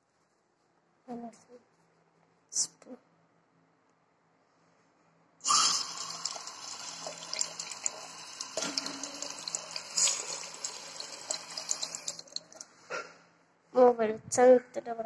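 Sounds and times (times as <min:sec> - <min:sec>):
tap water running into basin: 0:05.5 - 0:12.7
water splashing off spoon: 0:05.5 - 0:12.7.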